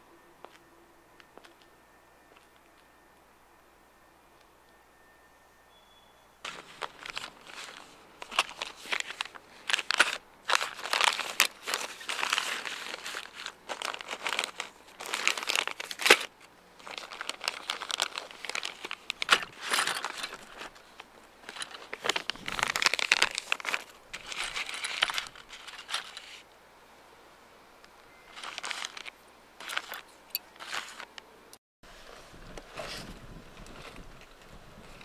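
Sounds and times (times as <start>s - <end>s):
plastic bags crinkling: 6.4s - 26.4s, 28.1s - 31.1s.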